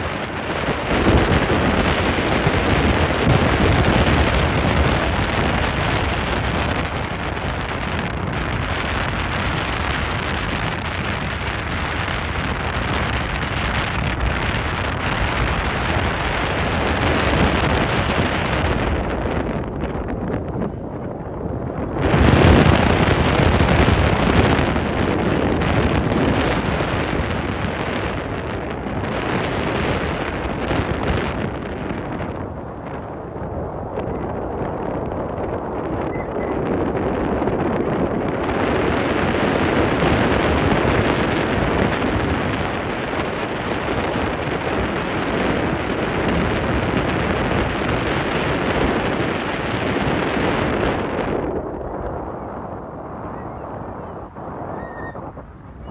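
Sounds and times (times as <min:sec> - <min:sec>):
wind blowing across microphone: 0:00.0 - 0:55.9.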